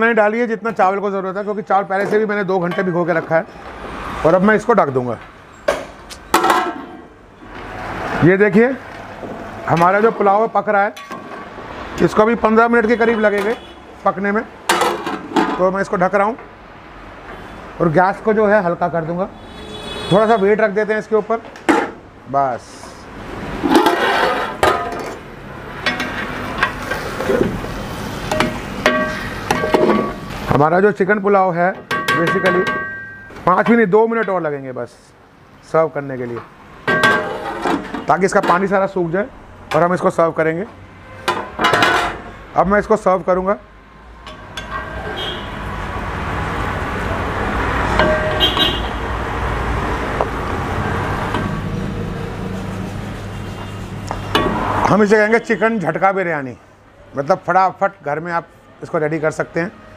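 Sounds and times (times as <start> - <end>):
metal spoon scraping metal pot: 23.6 - 25.2.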